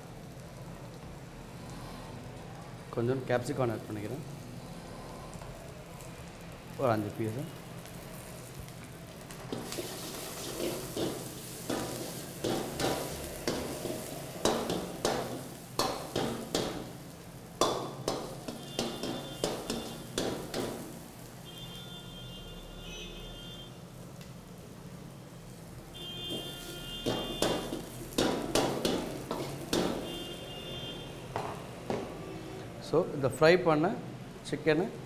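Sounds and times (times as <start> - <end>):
frying sizzle: 0.0 - 35.0
metal ladle scraping a wok: 9.5 - 15.1.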